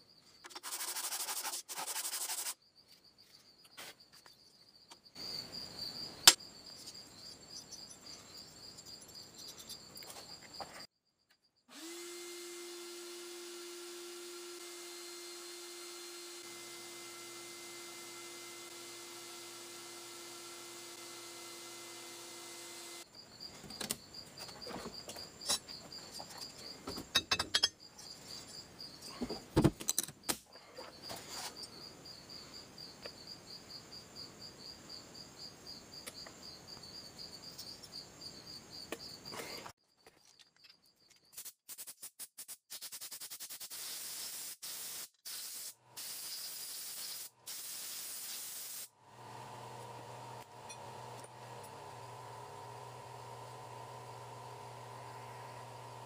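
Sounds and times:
cricket chirping: 0.0s - 11.6s, 23.0s - 41.4s
clinks and knocks: 23.7s - 28.2s, 29.1s - 30.3s.

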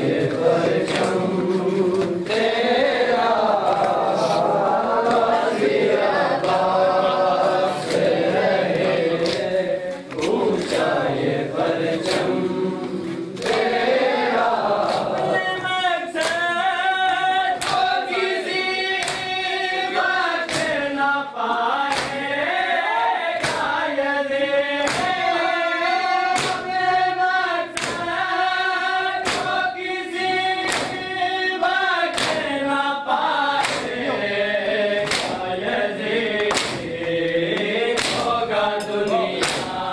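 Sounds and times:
people chanting together: 0.0s - 39.9s
hands slapping chests: 0.1s - 5.5s, 6.2s - 15.4s, 16.2s - 18.1s, 18.9s - 19.5s, 20.4s - 20.8s, 21.8s - 22.4s, 23.4s - 23.8s, 24.8s - 25.3s, 26.3s - 26.8s, 27.7s - 28.2s, 29.2s - 29.7s, 30.6s - 31.1s, 32.1s - 32.6s, 33.6s - 34.0s, 35.0s - 35.7s, 36.3s - 39.9s.

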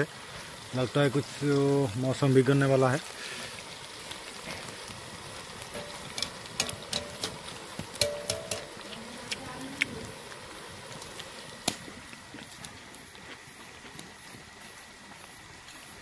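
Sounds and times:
food sizzling in hot oil: 0.0s - 16.0s
skimmer clinking against pan: 5.7s - 8.8s.

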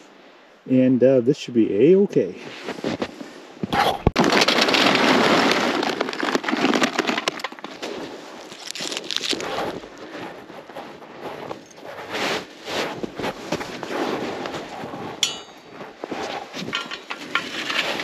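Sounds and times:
charcoal clattering into metal: 15.2s - 15.8s, 16.6s - 18.0s.

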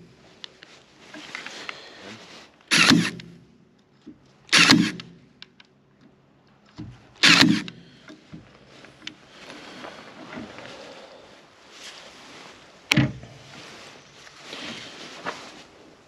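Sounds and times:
stapler firing: 2.7s - 3.3s, 4.5s - 5.1s, 7.2s - 7.8s.

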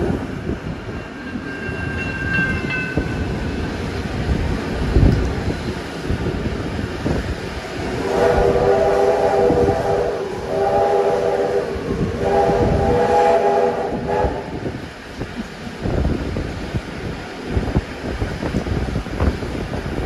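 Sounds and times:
train carriages rumbling: 0.0s - 20.0s
steam locomotive whistle blasts: 8.0s - 14.6s.

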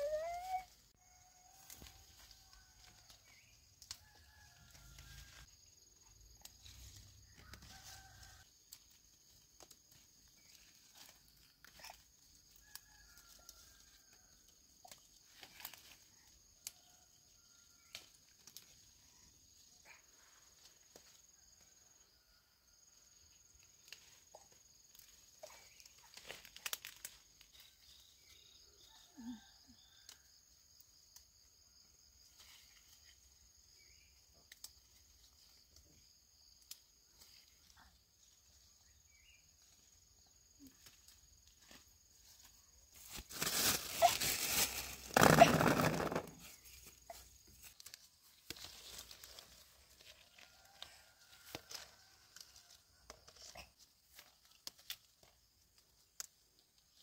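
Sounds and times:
tree leaves rustling: 23.8s - 27.8s, 36.4s - 52.7s.

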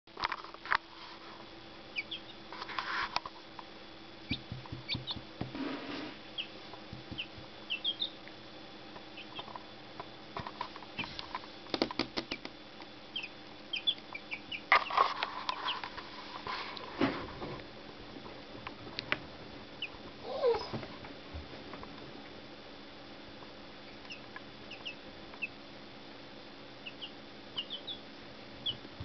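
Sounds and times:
chicks peeping: 1.9s - 2.8s, 4.2s - 8.3s, 9.0s - 9.7s, 13.1s - 16.8s, 19.8s - 20.7s, 23.8s - 25.6s, 26.8s - 29.0s
chicks pecking on towel: 4.2s - 8.2s, 9.1s - 9.7s, 13.1s - 17.6s.

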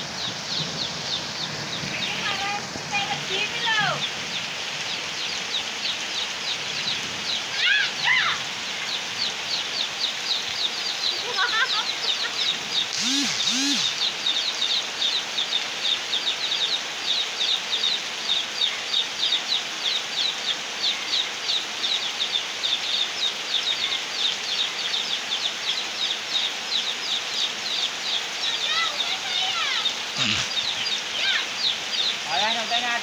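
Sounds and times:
heavy rain pouring: 0.0s - 33.0s
bird peeping calls: 8.7s - 32.9s
low two-part call: 12.9s - 14.1s, 30.2s - 30.9s.

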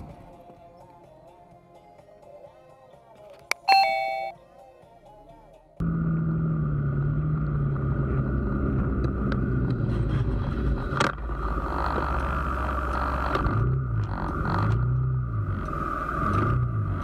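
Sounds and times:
wind and road noise: 5.8s - 17.0s.

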